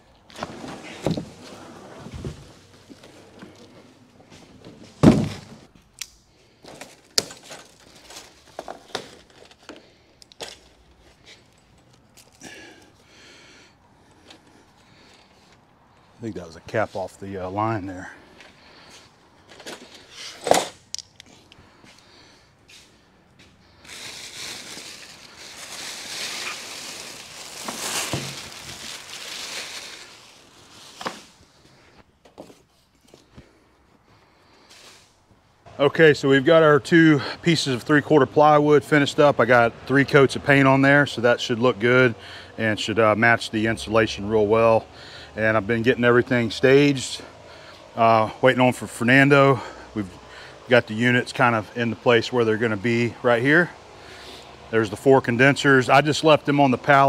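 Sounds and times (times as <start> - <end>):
plastic wrap rustling: 6.7 - 9.7, 23.8 - 31.8.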